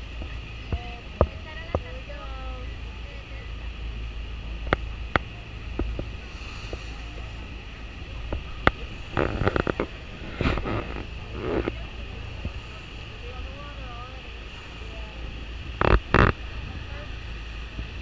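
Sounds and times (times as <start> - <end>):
waterfall rumble: 0.0 - 18.0
wind on microphone: 4.4 - 18.0.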